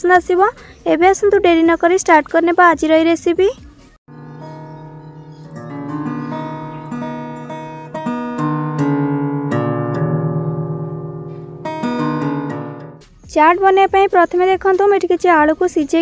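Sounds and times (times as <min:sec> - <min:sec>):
acoustic guitar music: 0:04.1 - 0:13.1.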